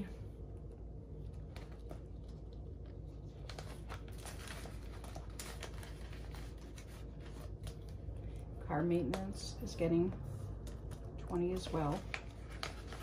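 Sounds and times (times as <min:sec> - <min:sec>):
faint low hum: 0:00.0 - 0:13.0
paper bills rustling: 0:01.3 - 0:08.4, 0:10.6 - 0:13.0.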